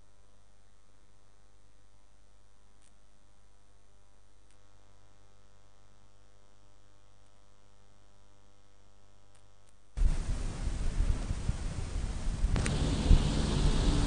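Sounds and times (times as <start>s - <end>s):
electrical mains hum: 0.0s - 14.0s
faint hiss: 10.0s - 14.0s
loud rush of noise on microphone: 10.0s - 14.0s
faint clicks: 12.5s - 12.8s.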